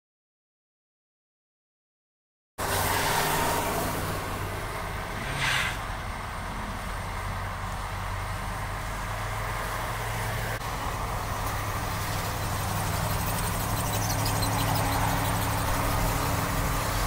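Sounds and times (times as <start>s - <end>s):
idling vehicle engines hum: 2.6s - 17.0s
pickup truck engine running: 3.8s - 17.0s.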